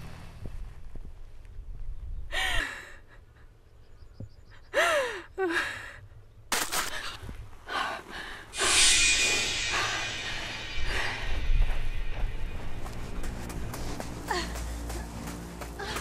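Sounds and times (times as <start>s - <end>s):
loud rushing noise: 8.6s - 15.5s.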